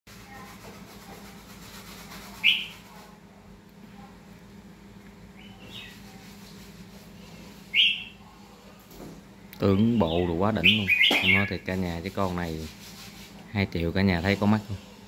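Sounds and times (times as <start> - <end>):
bird giving high calls: 10.6 - 11.6.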